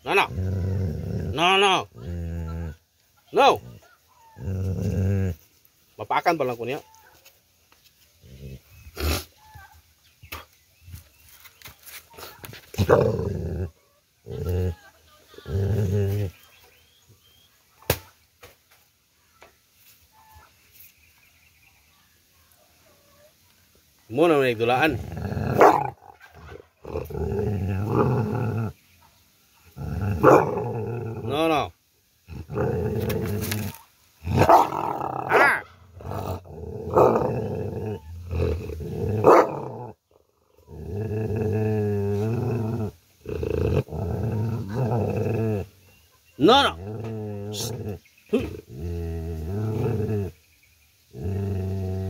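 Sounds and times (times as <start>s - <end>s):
dog growling low: 0.0s - 2.8s, 3.5s - 5.4s, 12.7s - 16.5s, 24.7s - 28.8s, 29.6s - 31.7s, 32.3s - 45.8s, 46.4s - 50.4s, 51.1s - 52.0s.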